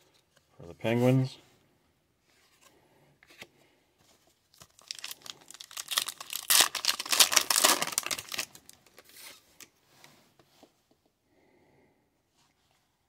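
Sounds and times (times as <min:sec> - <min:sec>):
plastic wrapper tearing: 0:04.5 - 0:09.1
wrapper rustle: 0:04.5 - 0:09.4.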